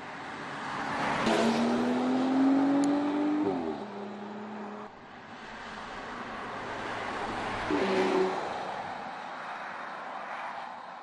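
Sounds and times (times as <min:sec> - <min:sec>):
car engine accelerating: 0:01.2 - 0:05.0.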